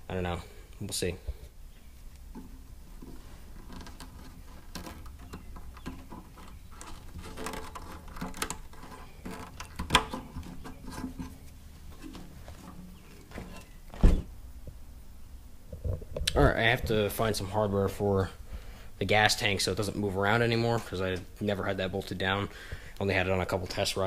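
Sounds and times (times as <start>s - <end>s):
hands rubbing and rustling: 1.8s - 14.0s
heavy thump: 13.3s - 14.3s.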